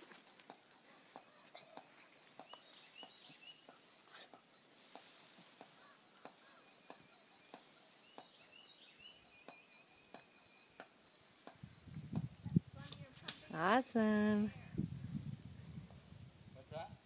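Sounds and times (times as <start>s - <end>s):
faint bird chirps: 5.6s - 11.4s.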